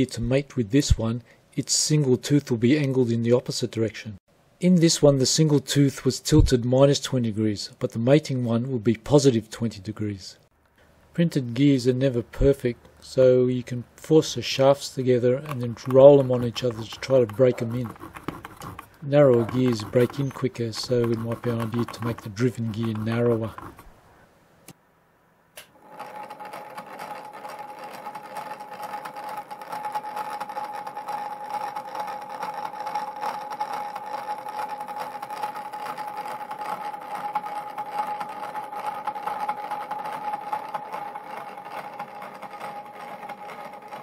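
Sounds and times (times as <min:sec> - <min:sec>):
gear motor whirring and whining: 0:15.4 - 0:23.9, 0:25.8 - 0:44.0.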